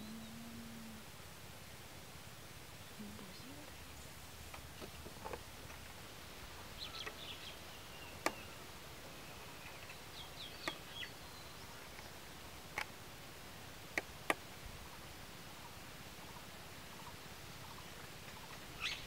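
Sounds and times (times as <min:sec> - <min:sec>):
faint bird chirps: 0:00.0 - 0:01.0, 0:06.6 - 0:12.3, 0:14.7 - 0:19.0
sharp clicks: 0:08.2 - 0:08.4, 0:10.6 - 0:10.9.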